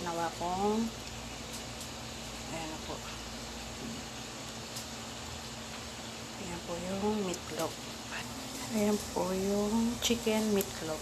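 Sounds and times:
air conditioner running: 0.0 - 11.0.

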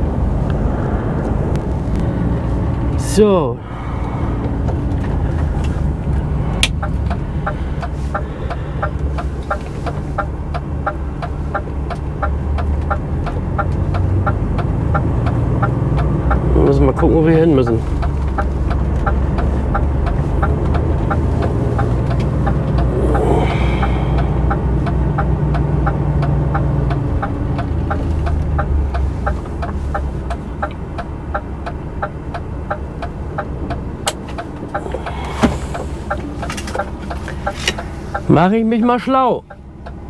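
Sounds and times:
truck diesel engine drone: 0.0 - 40.0
steady even ticking: 3.6 - 40.0.

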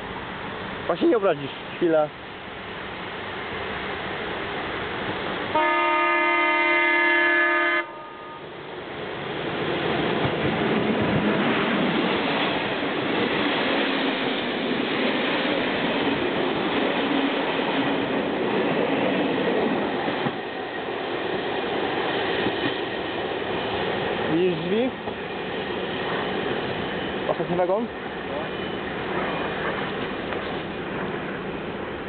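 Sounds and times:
train horn blast: 5.5 - 8.5
train wheels clattering on rails: 9.1 - 31.4.

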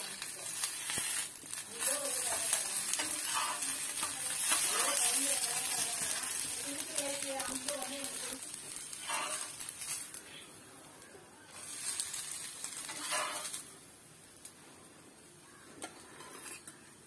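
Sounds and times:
pancake sizzling on griddle: 0.0 - 17.0.

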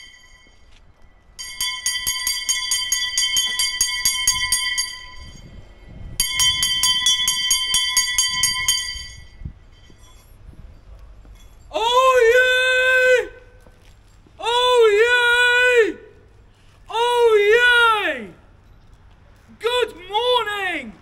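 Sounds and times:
handbell rung rapidly: 1.4 - 10.3.

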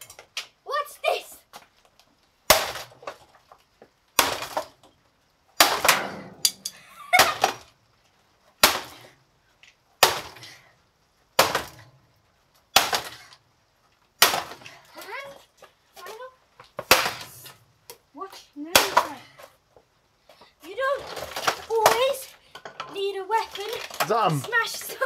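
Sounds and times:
hard strikes cracking plastic: 11.4 - 11.8, 12.7 - 13.2, 16.8 - 17.3
plastic breaking crackle: 20.9 - 22.3, 23.4 - 25.0.

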